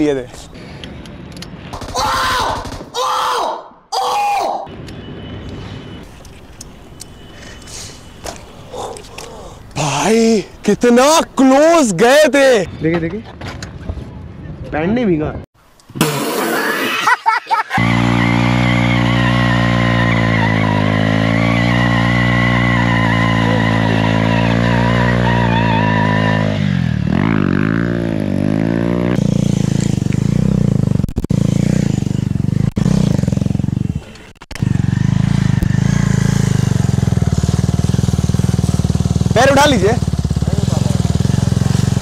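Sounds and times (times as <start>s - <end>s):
motorcycle engine revving: 17.8s - 42.0s.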